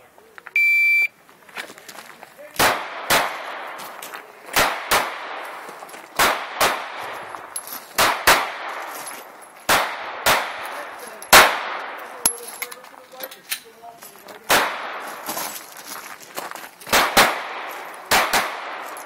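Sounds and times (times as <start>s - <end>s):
pistol shots with echo: 2.6s - 3.9s, 4.5s - 5.6s, 6.2s - 7.2s, 8.0s - 9.0s, 9.7s - 12.3s, 14.5s - 15.2s, 16.9s - 19.0s.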